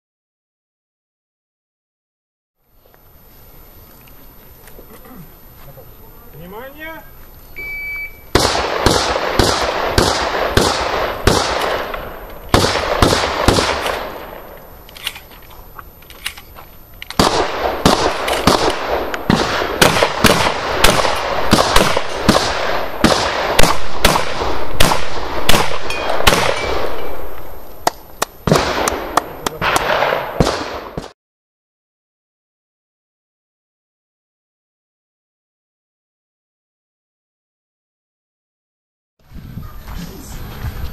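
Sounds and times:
shotgun shots echoing: 8.3 - 14.5, 17.2 - 27.4, 28.4 - 31.1.

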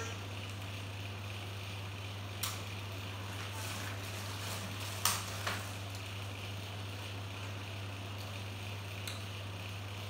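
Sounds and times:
low hum with hiss: 0.0 - 10.0.

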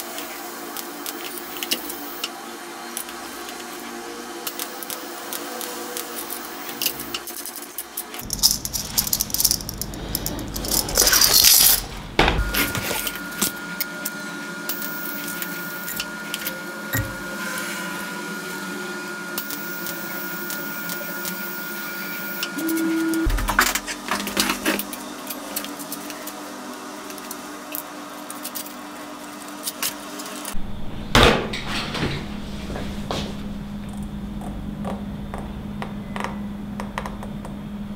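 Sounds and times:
steady hum: 8.0 - 27.6, 29.2 - 37.9
steel parts clinking: 8.2 - 12.0.

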